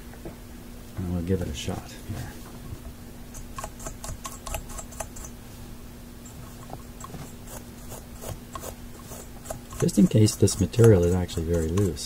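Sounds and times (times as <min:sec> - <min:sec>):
toothbrush scrubbing metal pins: 0:03.4 - 0:05.4, 0:06.3 - 0:12.0.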